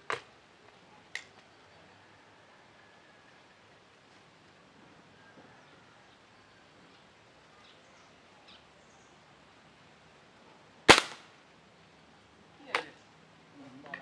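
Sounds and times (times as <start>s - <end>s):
air rifle shot: 10.9s - 11.3s.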